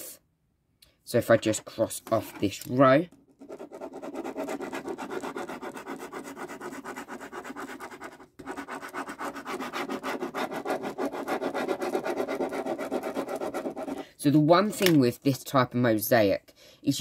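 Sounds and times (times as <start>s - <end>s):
pen scribbling on paper: 3.4s - 14.0s.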